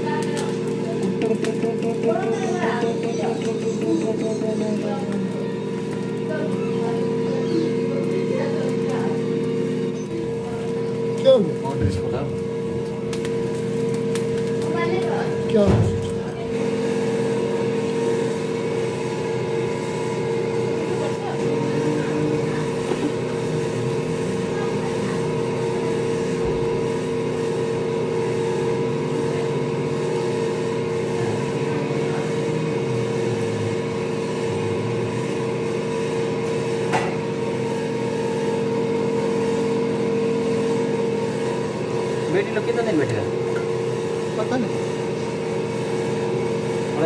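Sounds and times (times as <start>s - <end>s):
faint low voices: 0.0s - 12.6s, 19.3s - 28.0s, 30.7s - 35.8s
steady machine hum: 0.0s - 47.0s.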